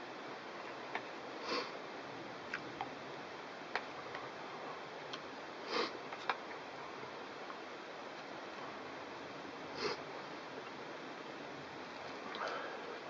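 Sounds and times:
faint hiss: 0:00.0 - 0:13.0
man sniffing: 0:01.4 - 0:01.8, 0:05.7 - 0:06.0, 0:09.8 - 0:10.0.

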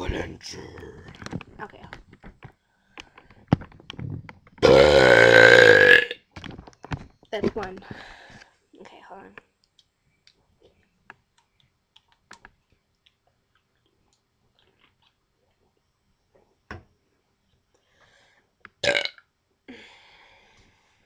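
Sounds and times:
drinking and swallowing: 0:00.5 - 0:01.6, 0:10.6 - 0:15.8
woman burping loudly: 0:04.6 - 0:06.2, 0:18.8 - 0:19.2.

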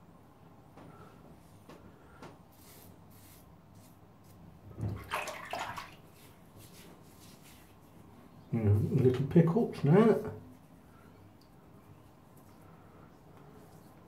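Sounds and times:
water splashing in a sink: 0:04.7 - 0:06.3.

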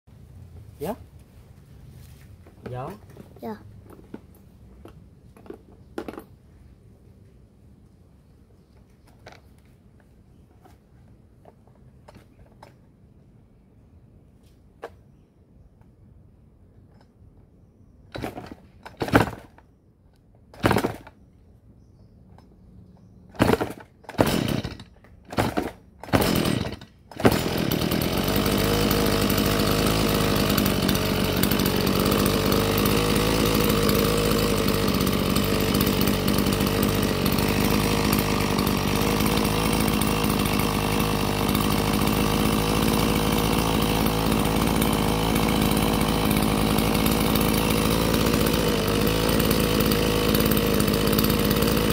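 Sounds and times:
chainsaw starter cord pulls: 0:11.4 - 0:12.9, 0:18.1 - 0:19.7, 0:20.5 - 0:21.2, 0:23.3 - 0:51.9
chainsaw engine running: 0:18.1 - 0:19.6, 0:20.6 - 0:21.1, 0:23.3 - 0:51.9.

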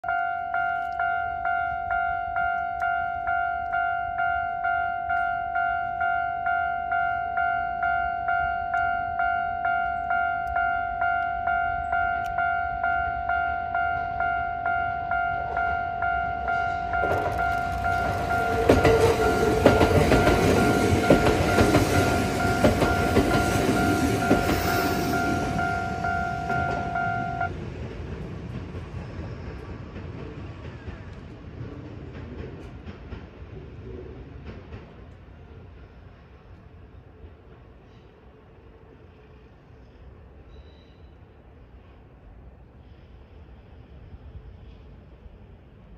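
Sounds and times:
level-crossing bell ringing: 0:00.0 - 0:27.5
train wheels rumbling and clacking: 0:15.1 - 0:38.7.

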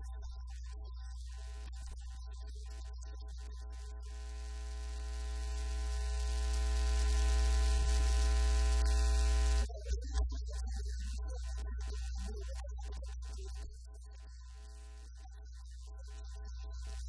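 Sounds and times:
electrical mains hum with hiss: 0:03.8 - 0:09.7.

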